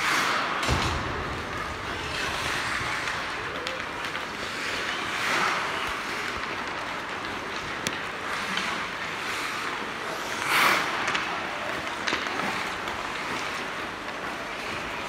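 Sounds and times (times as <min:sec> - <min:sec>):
hockey sticks and puck clicking: 0:00.0 - 0:15.0
skates scraping on ice: 0:00.0 - 0:15.0
thump: 0:00.6 - 0:03.1.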